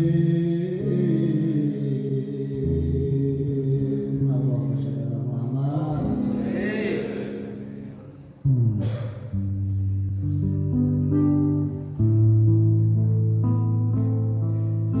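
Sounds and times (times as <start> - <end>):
sustained music: 5.8 - 14.9
group chanting: 5.9 - 8.4
loud music: 6.0 - 10.2.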